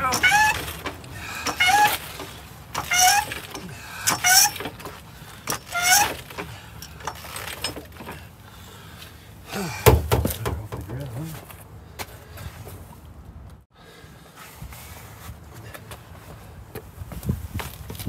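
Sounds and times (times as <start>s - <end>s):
floor jack pumping squeaks: 0.0s - 8.2s.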